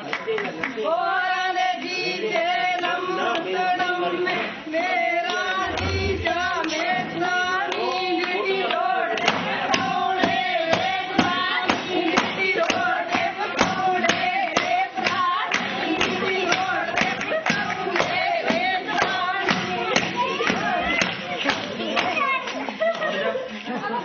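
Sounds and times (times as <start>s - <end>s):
women singing together: 0.0s - 24.0s
hand claps: 7.7s - 23.2s.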